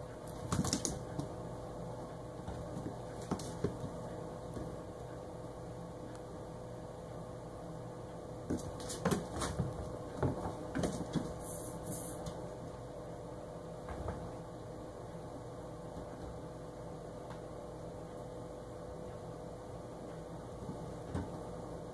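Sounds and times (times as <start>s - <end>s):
kittens scampering on floor: 0.2s - 1.4s, 2.5s - 4.8s, 8.4s - 12.4s.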